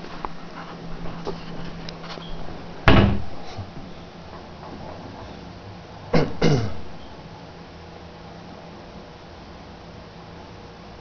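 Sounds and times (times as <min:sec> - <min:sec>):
loud thud: 0:02.8 - 0:03.4.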